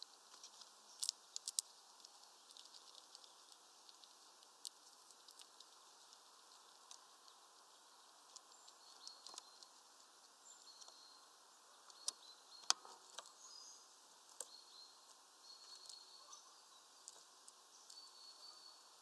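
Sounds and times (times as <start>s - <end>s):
squirrel nibbling clicks: 0.0s - 11.1s, 11.7s - 13.4s, 14.2s - 16.2s, 17.0s - 18.5s.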